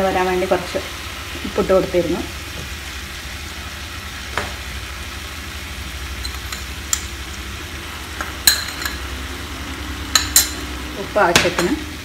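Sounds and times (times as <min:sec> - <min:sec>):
chicken sizzling in pan: 0:00.0 - 0:12.0
metal spoon clicks: 0:10.2 - 0:10.7.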